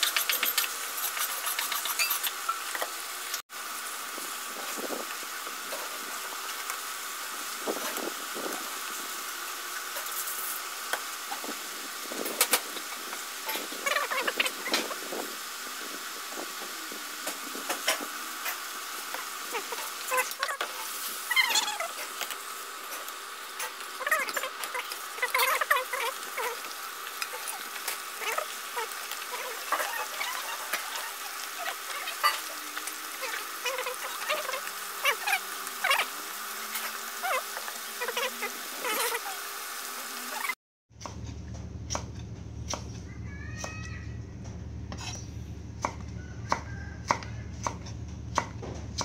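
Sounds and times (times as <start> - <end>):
chicken bubbling and sizzling: 0.0 - 40.6, 45.4 - 48.3
knife chopping on wooden board: 45.8 - 49.0.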